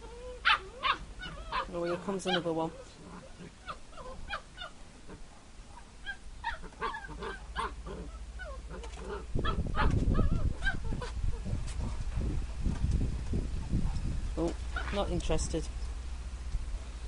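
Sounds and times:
puppies yipping and whining: 0:00.0 - 0:04.8, 0:05.7 - 0:11.2
low rumbling noise: 0:02.7 - 0:17.0.

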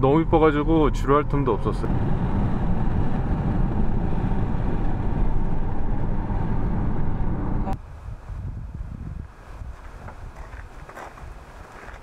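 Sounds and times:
road and tyre noise in car: 0:00.0 - 0:07.8.

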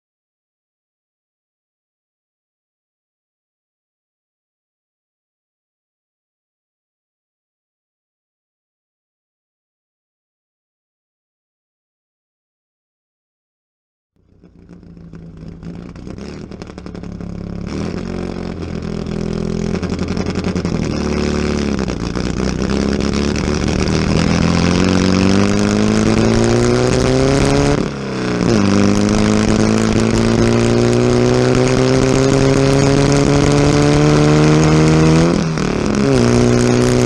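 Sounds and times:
race engine under full throttle: 0:14.2 - 0:37.0.

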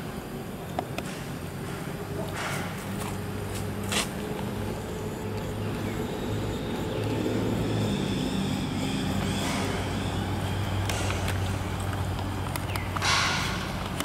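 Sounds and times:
motor humming: 0:00.0 - 0:14.0.

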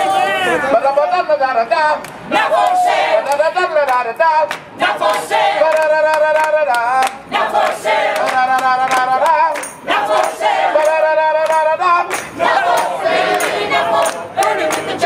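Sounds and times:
choir singing held notes: 0:02.3 - 0:03.6, 0:07.3 - 0:15.0.

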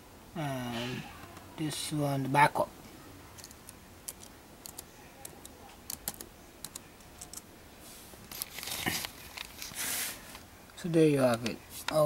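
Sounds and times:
keyboard keystrokes: 0:03.4 - 0:07.4.

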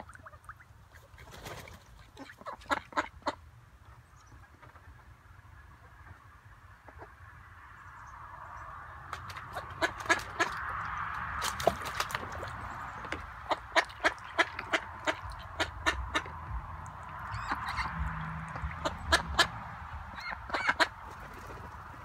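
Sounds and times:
ducks quacking: 0:02.0 - 0:03.4, 0:09.3 - 0:11.0, 0:13.1 - 0:21.2.

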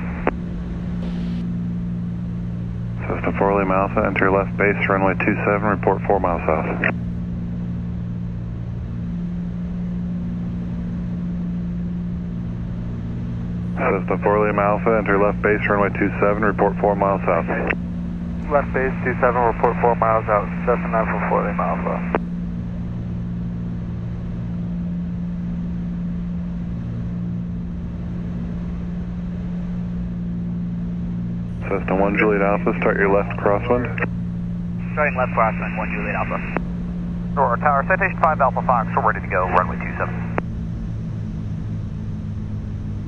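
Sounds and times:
piston aircraft engines droning: 0:00.0 - 0:43.0.

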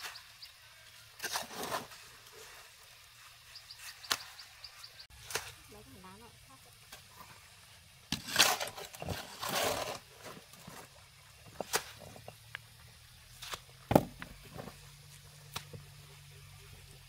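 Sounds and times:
shovel scraping wet concrete: 0:01.1 - 0:04.3, 0:08.1 - 0:12.3, 0:13.3 - 0:14.8.

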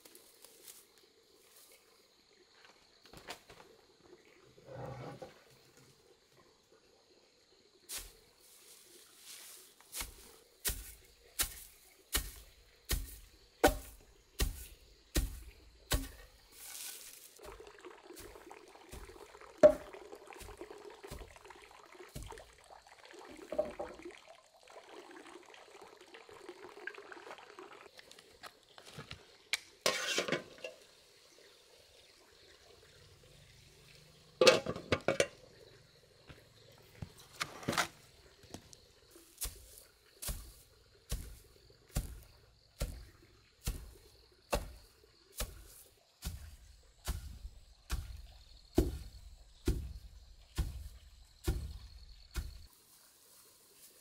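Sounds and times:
metal pot lid clanking: 0:29.9 - 0:30.8, 0:34.4 - 0:35.4.

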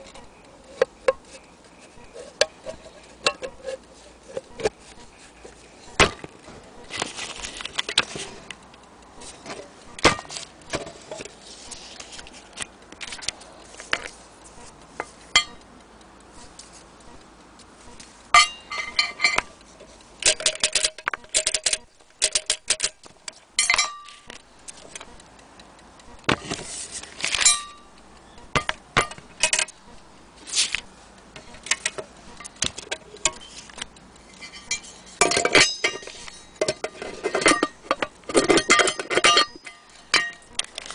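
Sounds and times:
metallic clinks and knocks: 0:02.1 - 0:04.8, 0:18.3 - 0:25.1, 0:27.3 - 0:27.9, 0:31.4 - 0:40.9.

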